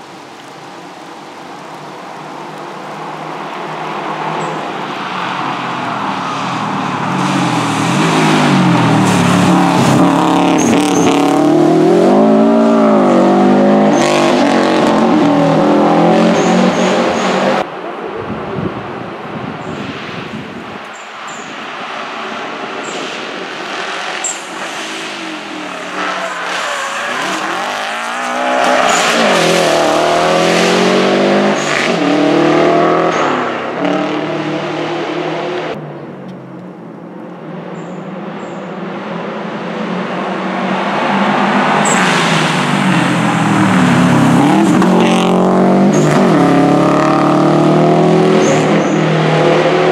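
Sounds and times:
rally car engine revving: 0:06.2 - 0:17.6, 0:22.9 - 0:35.8, 0:39.6 - 0:49.9.

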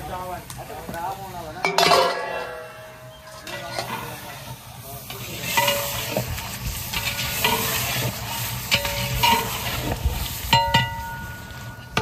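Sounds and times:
curry sizzling: 0:00.0 - 0:12.0
metal pot ringing: 0:01.6 - 0:04.0, 0:05.5 - 0:06.2, 0:08.7 - 0:09.6, 0:10.5 - 0:12.0
metal stirrer scraping pot: 0:05.0 - 0:12.0.

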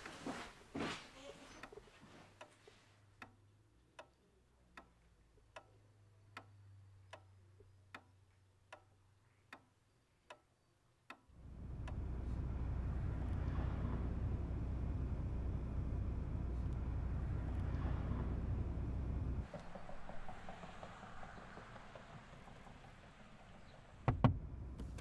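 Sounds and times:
faint low hum: 0:11.3 - 0:21.2
steady outdoor rumble: 0:11.3 - 0:25.0.

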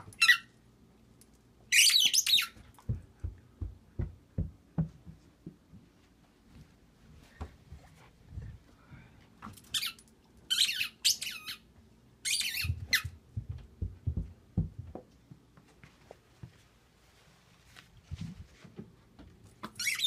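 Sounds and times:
ball bouncing down carpeted stairs: 0:02.3 - 0:07.9, 0:12.4 - 0:16.6.

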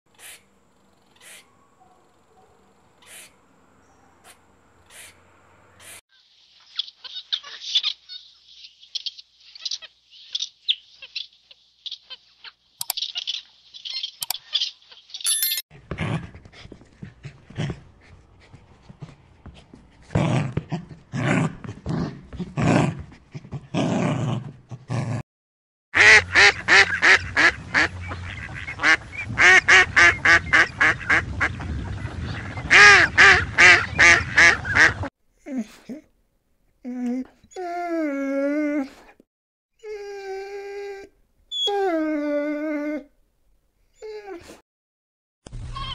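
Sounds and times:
high chirping animal calls: 0:01.0 - 0:02.2, 0:03.0 - 0:05.2, 0:06.6 - 0:15.6
fast loud animal calls: 0:03.0 - 0:03.4.

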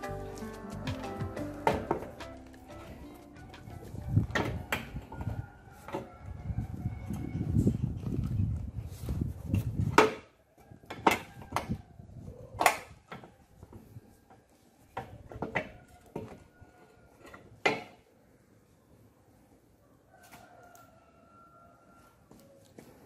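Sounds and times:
close handling noise: 0:00.0 - 0:06.3.

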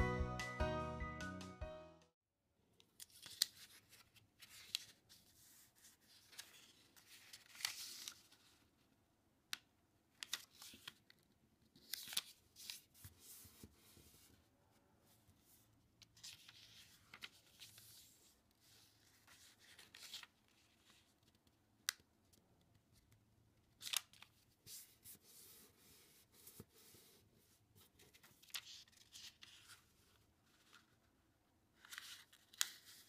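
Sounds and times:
paper rustling and crinkling: 0:03.0 - 0:08.7, 0:11.8 - 0:14.3, 0:16.2 - 0:21.4, 0:27.8 - 0:31.1, 0:31.8 - 0:33.0.

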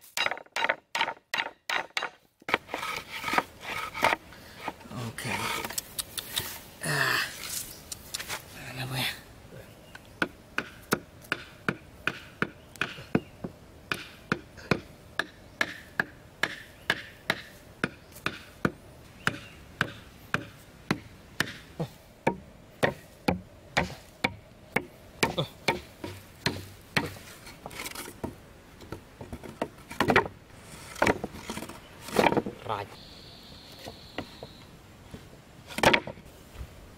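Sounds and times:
hammer striking nails into wood: 0:13.9 - 0:17.5.

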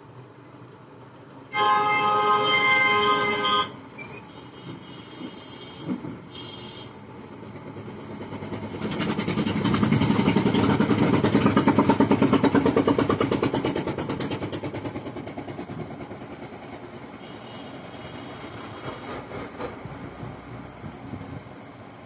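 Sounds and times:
vehicle engine passing by: 0:07.6 - 0:21.6.

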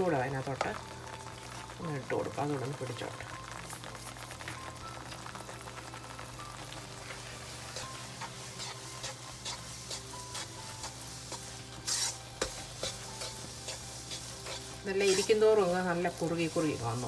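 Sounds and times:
soft sizzle: 0:00.0 - 0:17.0
spatula scraping a pan: 0:07.0 - 0:17.0.

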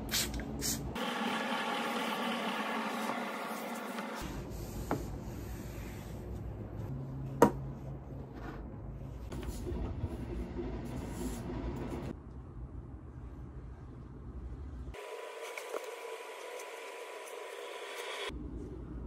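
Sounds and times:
low room rumble: 0:04.2 - 0:15.0.

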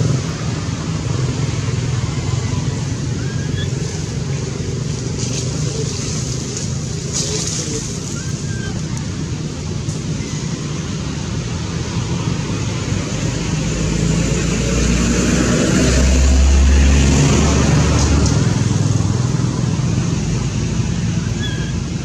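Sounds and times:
vehicle engine rumbling: 0:00.0 - 0:22.0.

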